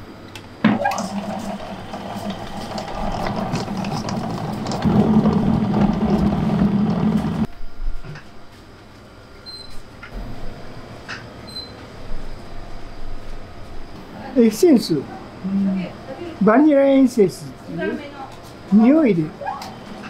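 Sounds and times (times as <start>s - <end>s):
electric stand mixer running: 0.7s - 7.5s.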